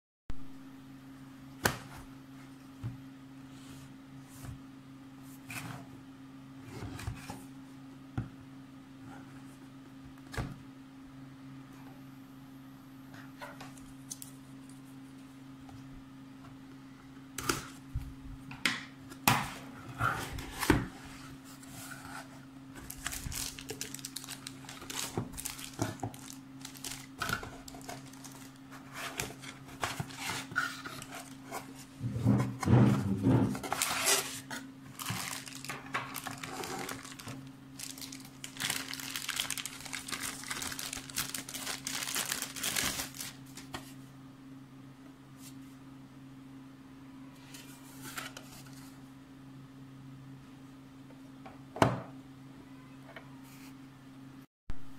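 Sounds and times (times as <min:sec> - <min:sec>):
plastic wrap crinkling: 0:22.8 - 0:31.4, 0:33.6 - 0:43.8.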